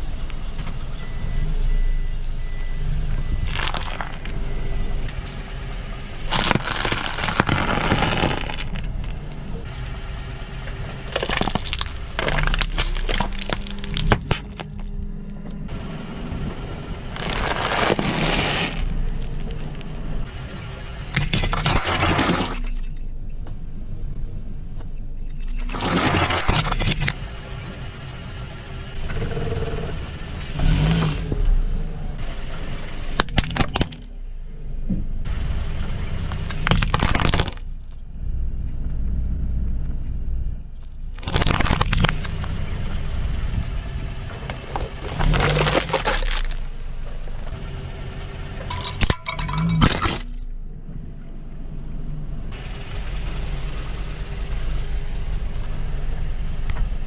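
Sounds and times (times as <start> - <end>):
car rumbling: 0.0 - 57.0
tyre crushing brittle objects: 3.4 - 4.3, 6.3 - 9.2, 11.1 - 15.0, 17.1 - 19.4, 21.1 - 22.6, 36.2 - 38.0, 40.8 - 42.6, 44.4 - 47.2, 48.7 - 50.5.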